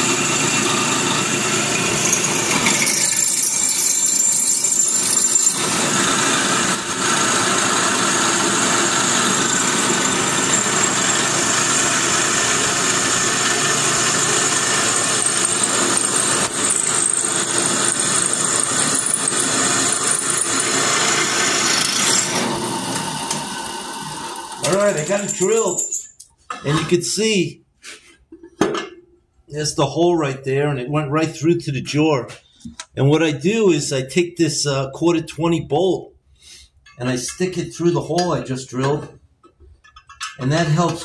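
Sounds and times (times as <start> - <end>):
drill press drilling metal: 0.0 - 25.8.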